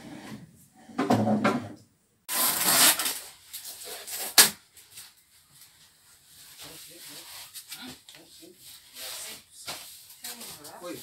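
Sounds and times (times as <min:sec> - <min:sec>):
small rustles: 0:03.4 - 0:11.0.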